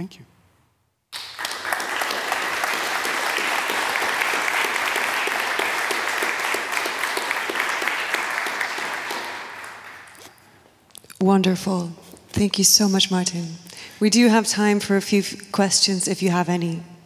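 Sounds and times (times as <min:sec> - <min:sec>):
audience applauding: 0:01.1 - 0:10.4.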